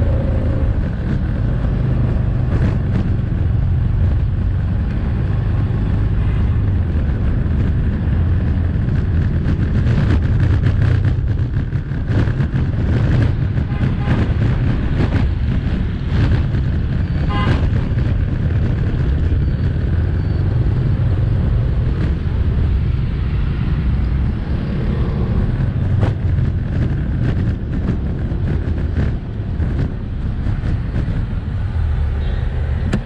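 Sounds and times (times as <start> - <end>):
road noise: 0.0 - 33.0
wind on microphone: 0.0 - 33.0.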